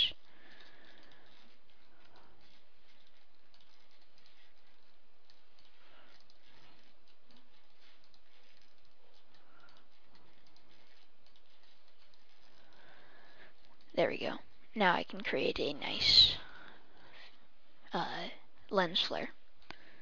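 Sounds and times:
computer mouse clicks: 0.0s - 12.9s.

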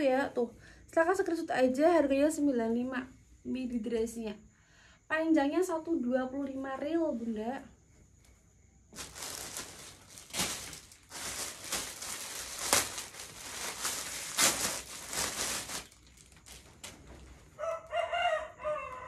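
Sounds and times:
clothing rustling: 8.9s - 17.6s.

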